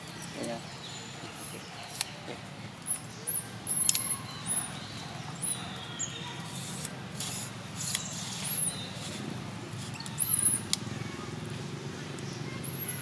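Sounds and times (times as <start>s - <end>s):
sharp clicks: 3.7s - 4.2s, 10.0s - 10.9s.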